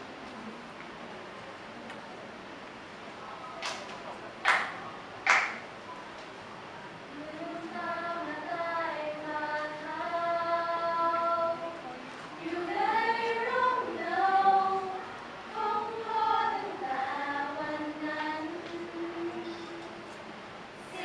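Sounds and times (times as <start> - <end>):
women's choir singing in harmony: 7.1 - 21.0.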